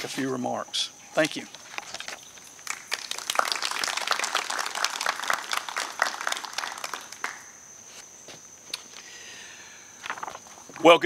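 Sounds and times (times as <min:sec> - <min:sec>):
crickets chirping: 0:00.0 - 0:11.0
audience applauding: 0:02.6 - 0:07.5.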